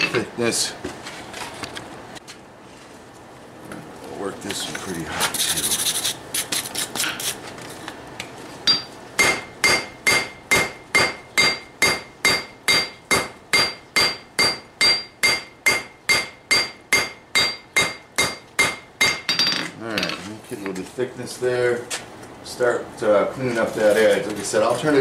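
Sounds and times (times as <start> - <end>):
hammer striking steel on anvil: 8.7 - 20.2.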